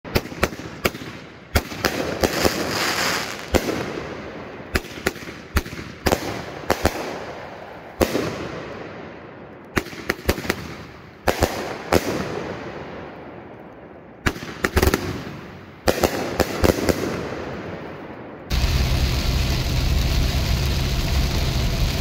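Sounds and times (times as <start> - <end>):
fireworks bangs: 0.0 - 13.5, 14.2 - 22.0
firework hiss: 2.2 - 3.6, 18.5 - 22.0.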